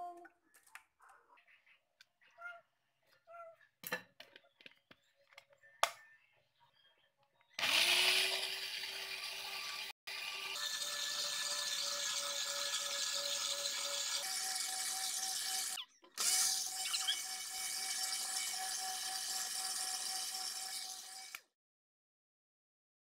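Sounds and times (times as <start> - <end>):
blender motor whining: 7.6 - 21.5.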